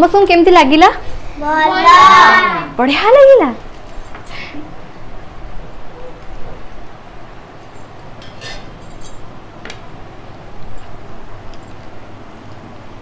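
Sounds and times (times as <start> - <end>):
low background hum: 0.0 - 13.0
metal spoon clinking on bowls: 7.7 - 9.3.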